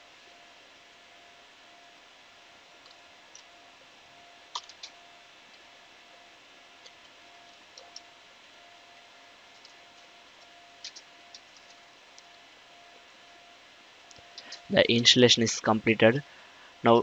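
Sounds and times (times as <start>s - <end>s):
faint steady hiss: 0.0s - 17.0s
mouse and keyboard clicks: 4.5s - 5.0s, 10.8s - 11.8s.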